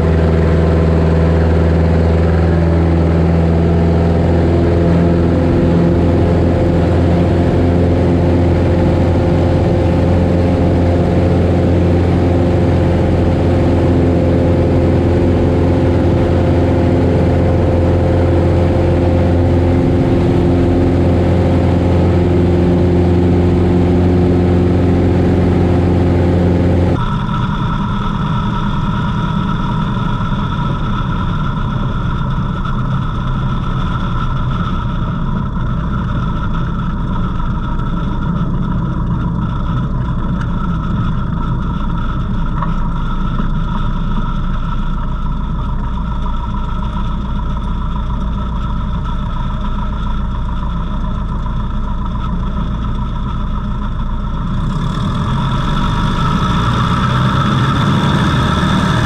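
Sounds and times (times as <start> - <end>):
light aircraft engine and propeller: 0.0 - 59.0.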